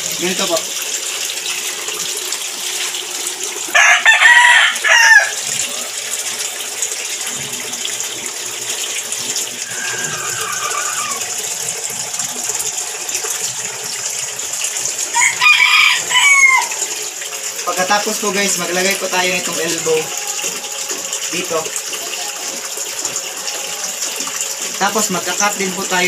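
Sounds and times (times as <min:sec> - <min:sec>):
running water: 0:00.0 - 0:26.0
rooster crowing: 0:03.7 - 0:05.5, 0:09.6 - 0:11.6, 0:15.1 - 0:16.9.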